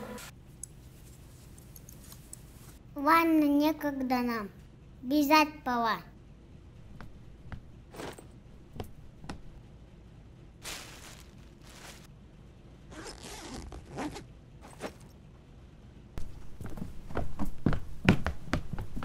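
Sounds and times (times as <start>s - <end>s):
rustling: 10.6s - 12.1s
backpack zipper pulled: 12.9s - 15.0s.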